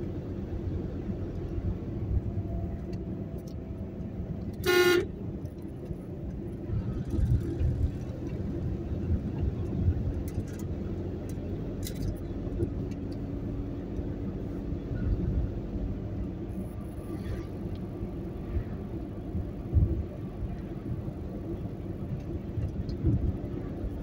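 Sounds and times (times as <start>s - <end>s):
car engine and tyre rumble: 0.0s - 24.0s
car horn toot: 4.6s - 5.2s.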